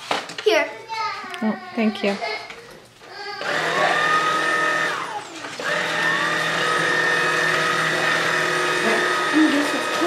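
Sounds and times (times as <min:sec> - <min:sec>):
vacuum cleaner motor whining: 0:03.1 - 0:10.0.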